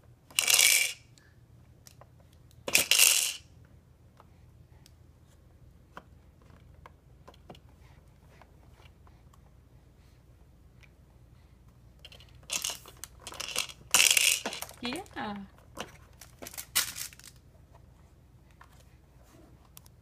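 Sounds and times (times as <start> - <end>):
bead rattle clattering: 12.0 - 15.1, 16.2 - 17.4.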